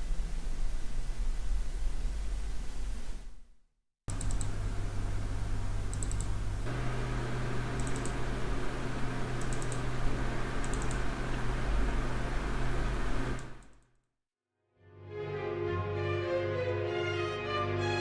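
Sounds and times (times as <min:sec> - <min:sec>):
faint high ticks: 0:04.1 - 0:04.6, 0:05.9 - 0:11.1
low hum: 0:04.1 - 0:13.7
computer fans whirring: 0:04.1 - 0:13.8.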